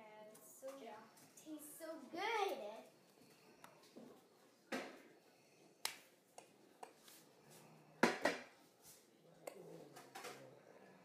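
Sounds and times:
hands snapping and slapping: 5.8 - 6.5.

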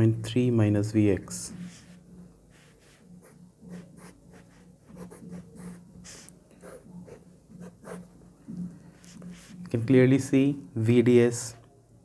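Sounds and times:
pen scratching on paper: 1.5 - 8.1, 8.9 - 9.7.

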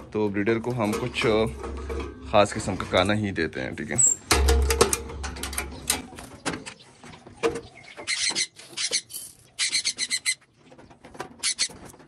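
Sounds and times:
metal cage door rattling: 0.7 - 3.2, 4.0 - 6.7
parrots calling: 7.6 - 10.5, 11.4 - 11.9.

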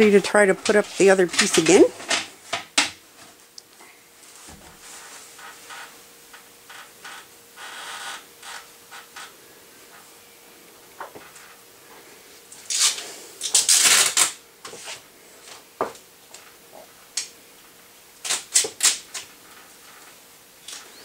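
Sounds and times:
metal duct pipe clattering: 0.0 - 2.9.

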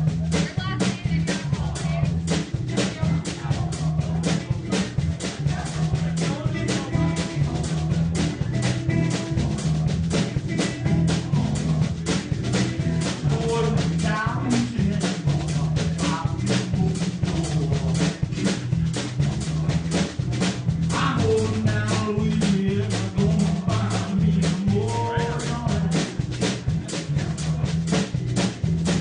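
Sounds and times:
bending guitar lead line: 0.0 - 29.0
blues music: 0.0 - 29.0.

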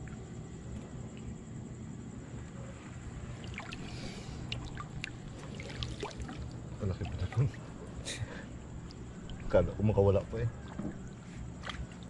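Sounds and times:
water splashing and dripping: 3.4 - 7.6, 8.8 - 9.7, 10.6 - 12.0.

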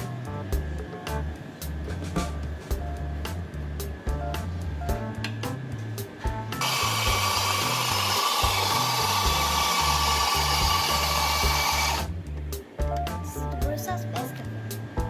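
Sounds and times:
background music: 0.0 - 15.0
coffee grinder whirring: 6.6 - 12.1.

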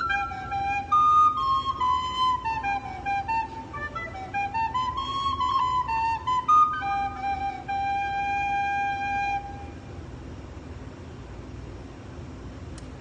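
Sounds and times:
fipple flute playing: 0.0 - 10.0.

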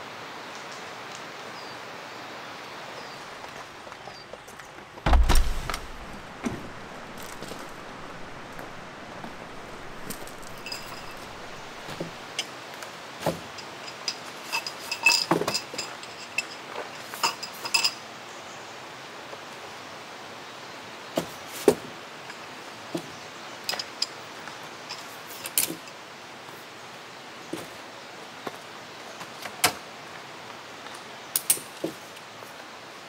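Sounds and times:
steady background hiss: 0.0 - 33.0
hard objects clinking and knocking: 5.1 - 12.2.

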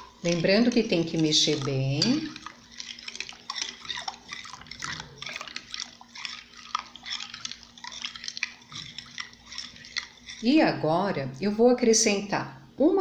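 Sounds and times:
liquid dripping: 0.0 - 11.5
spoon stirring soapy liquid: 0.0 - 11.9
spoon tapping glass: 0.3 - 2.5.

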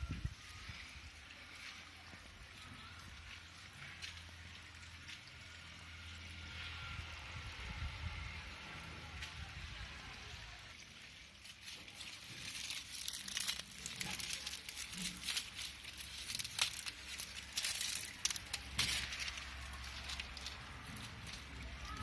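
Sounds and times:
leaves and twigs crackling: 9.1 - 22.0.

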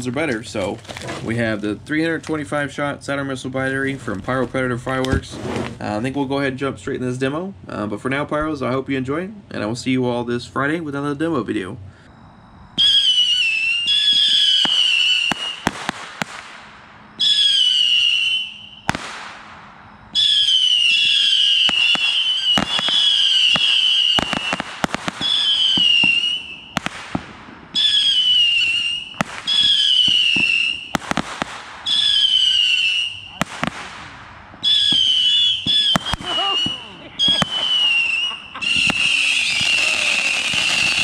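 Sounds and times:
whistling missiles: 12.7 - 41.0
sharp cracks of missiles bursting: 13.1 - 41.0.

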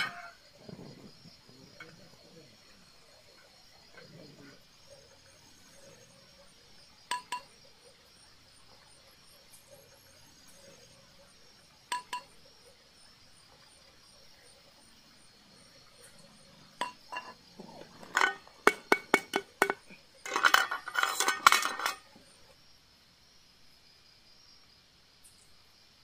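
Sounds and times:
pan clinking on metal stove: 7.1 - 7.5, 11.9 - 12.3, 16.8 - 22.1
dense metallic rattle: 16.8 - 22.0.

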